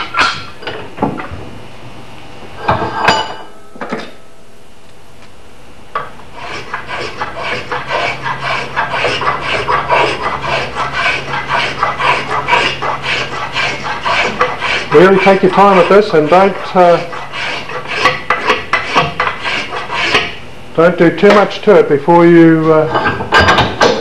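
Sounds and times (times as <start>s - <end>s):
spokeshave shaving wood: 6.3s - 20.4s.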